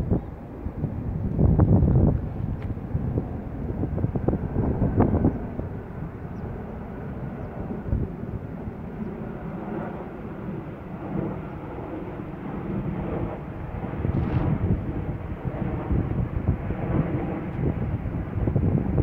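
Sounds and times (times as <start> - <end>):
low steady drone: 0.0 - 19.0
wind rumbling on microphone: 0.0 - 19.0.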